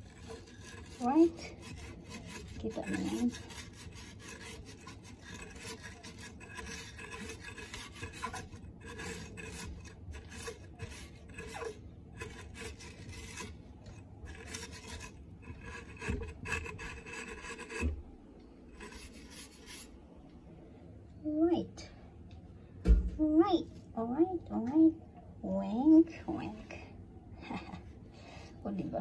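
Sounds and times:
steel wool scrubbing metal: 0.0 - 18.0, 18.7 - 19.9
knock: 22.8 - 23.2.

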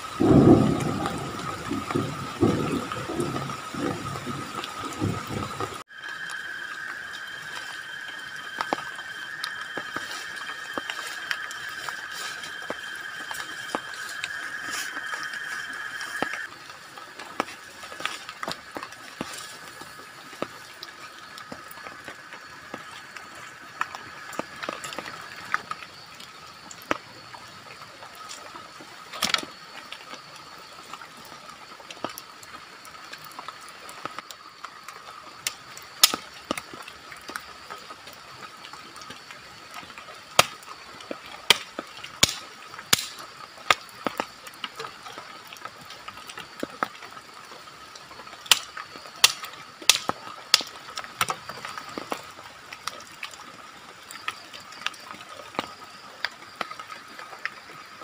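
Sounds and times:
steady high drone: 5.9 - 16.5
dry sticks clicking and knocking: 35.4 - 36.6, 41.4 - 44.8, 48.4 - 51.4.

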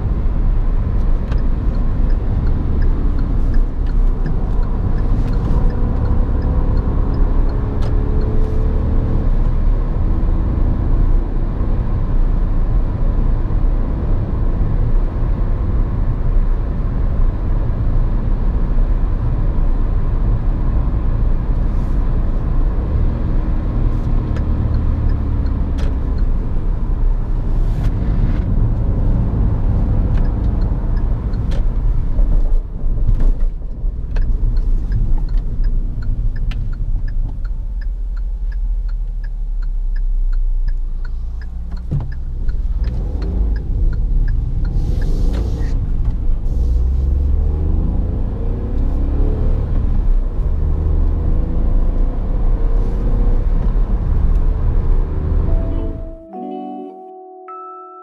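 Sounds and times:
car engine drone: 0.0 - 56.4
light regular ticking: 1.0 - 8.8, 24.4 - 27.4, 29.5 - 32.6, 33.8 - 46.2.

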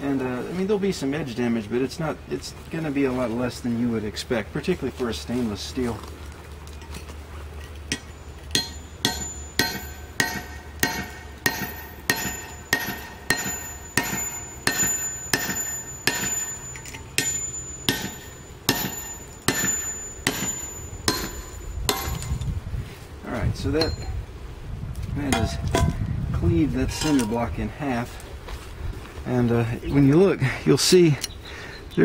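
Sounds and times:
hammer striking knife spine: 7.9 - 22.5, 25.3 - 26.0.

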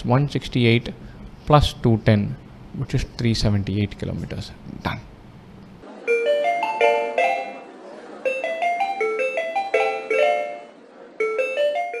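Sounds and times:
bell-like mallet jingle: 6.1 - 7.6, 8.3 - 10.6.

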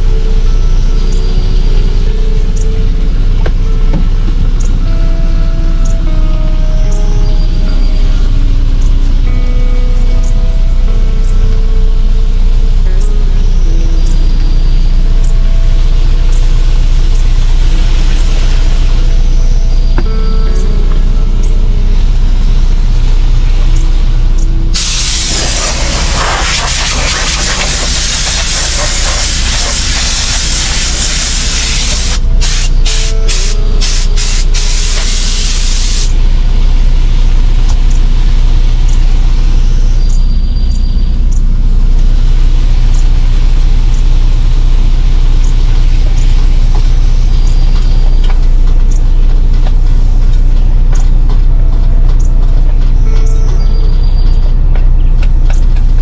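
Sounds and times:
steady low hum: 0.0 - 56.0
pressure cooker steam hiss: 24.8 - 36.1.

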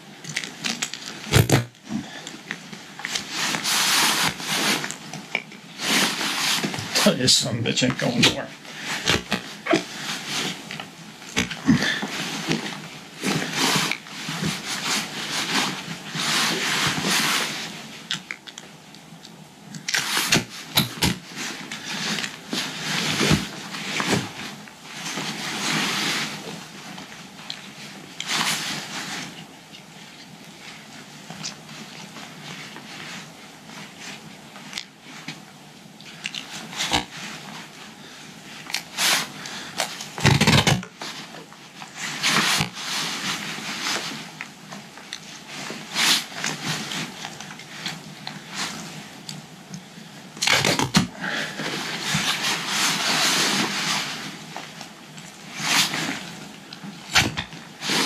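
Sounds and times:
straps rustling and scraping: 0.0 - 58.0
tape ripping off roll: 0.3 - 2.1, 8.1 - 10.7, 19.8 - 24.4, 36.4 - 37.2, 38.7 - 41.0, 50.4 - 51.1, 57.1 - 58.0.

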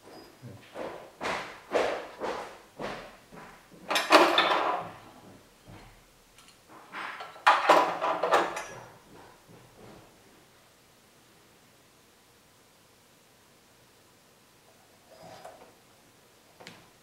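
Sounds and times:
sewing machine clunks and rattles: 3.7 - 6.0, 6.6 - 10.0.

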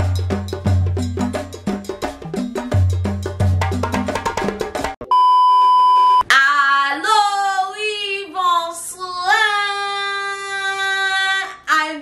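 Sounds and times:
test-pattern beep: 5.0 - 6.2
woman singing: 6.3 - 12.0.

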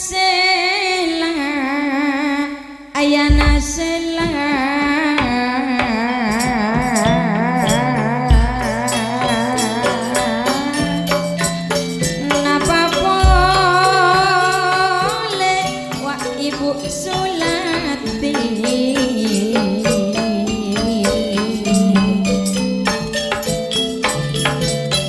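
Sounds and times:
woman singing with vibrato: 0.0 - 23.2
gamelan metallophones and drum: 3.3 - 25.0.

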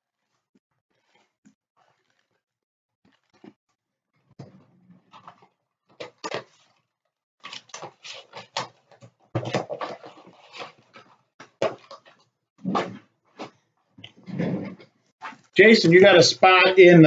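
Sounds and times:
foil packs rustling and crinkling: 7.4 - 13.6.

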